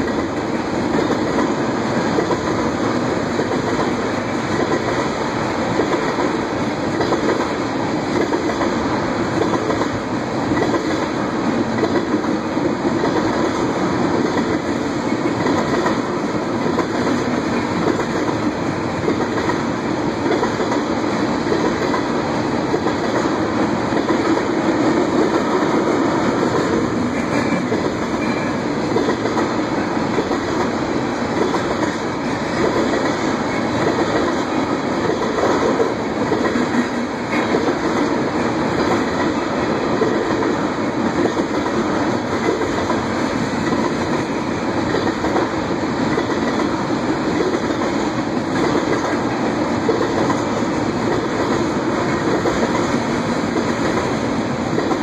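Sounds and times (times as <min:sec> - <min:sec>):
freight train wheels on rails: 0:00.0 - 0:55.0.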